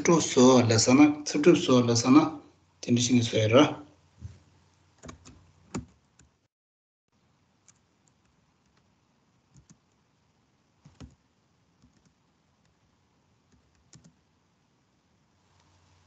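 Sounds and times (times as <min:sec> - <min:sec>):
keyboard keystrokes: 0:05.0 - 0:06.3, 0:10.9 - 0:11.2, 0:13.5 - 0:14.2.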